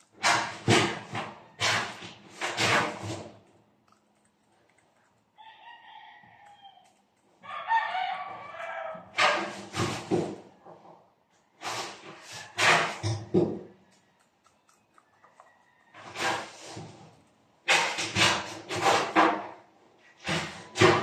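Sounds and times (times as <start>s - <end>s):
rooster crowing: 5.4s - 9.2s, 15.1s - 16.5s.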